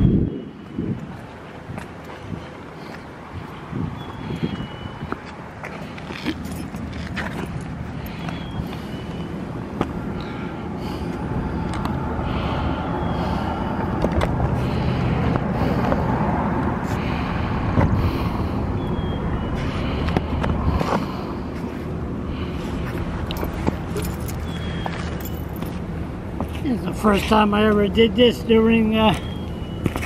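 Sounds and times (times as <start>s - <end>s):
outdoor background rumble: 0.0s - 30.0s
footsteps on stone: 1.0s - 3.1s, 4.1s - 8.9s.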